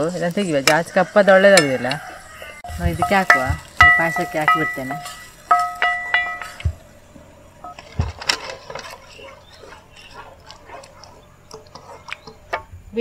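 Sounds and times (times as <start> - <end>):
ladle scraping pan: 8.2 - 12.7.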